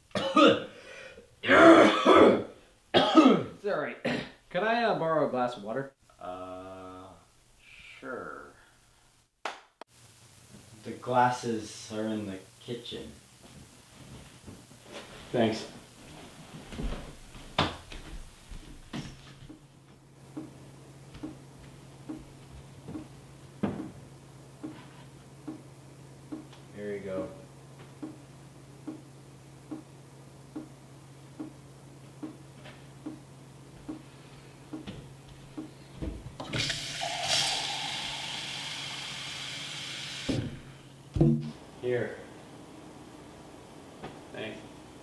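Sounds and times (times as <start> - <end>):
knocks and thuds: 23.6 - 24.0, 40.3 - 41.6
soft regular ticking: 28.0 - 28.2, 29.6 - 29.9, 31.4 - 31.6
water running from tap into glass: 36.4 - 40.4.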